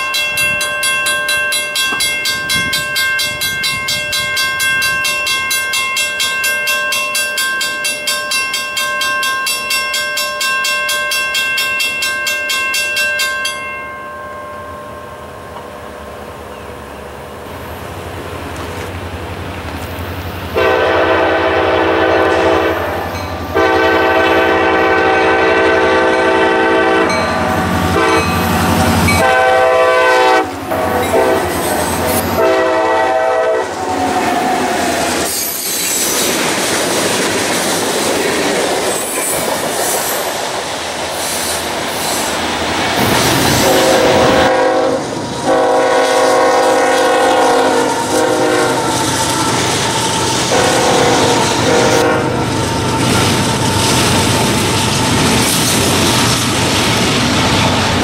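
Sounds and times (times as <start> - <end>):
train engine rumble: 12.8 - 58.0
locomotive air horn blasts: 20.6 - 28.4, 29.1 - 31.6, 32.2 - 34.6, 43.6 - 52.6
wheels clacking over rail joints: 47.3 - 58.0.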